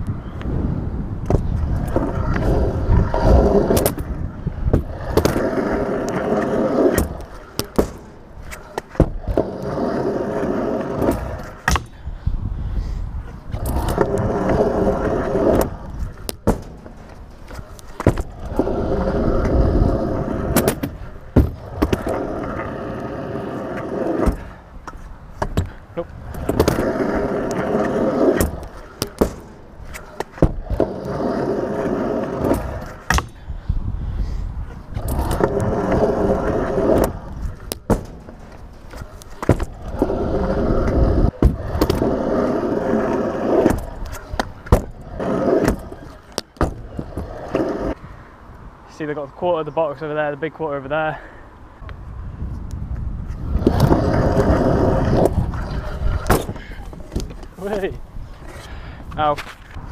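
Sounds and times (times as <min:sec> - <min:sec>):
scooter wheels rolling on tarmac: 0:00.0 - 0:49.2, 0:49.9 - 0:59.9
scooter deck clacking on ramps: 0:10.9 - 0:12.0, 0:24.0 - 0:26.9, 0:35.0 - 0:47.7.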